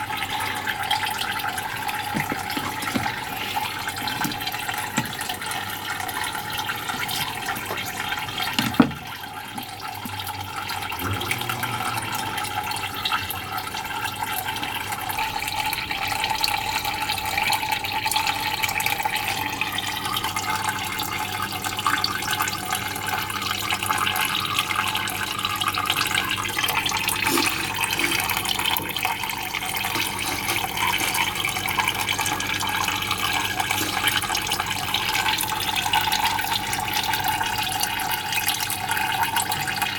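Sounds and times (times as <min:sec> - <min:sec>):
water running: 0:00.0 - 0:39.9.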